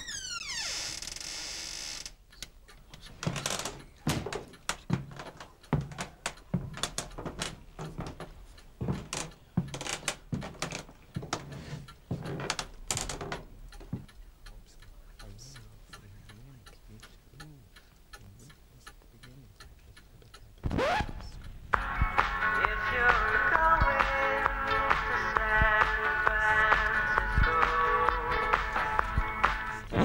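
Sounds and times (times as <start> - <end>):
footsteps on wooden floor: 3.0 - 14.1.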